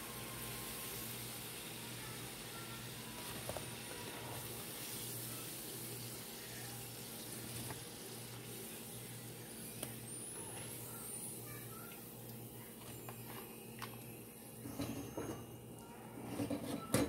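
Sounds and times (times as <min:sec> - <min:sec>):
hot oil sizzling in a pan: 0:00.0 - 0:13.3.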